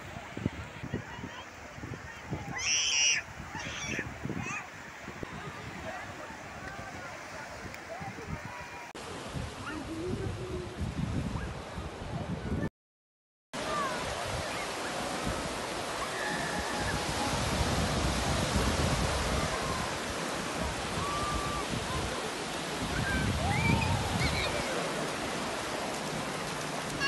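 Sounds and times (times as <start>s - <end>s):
small waves breaking on beach: 0.0s - 12.2s, 13.6s - 27.0s
distant calls and shouts: 2.5s - 5.0s.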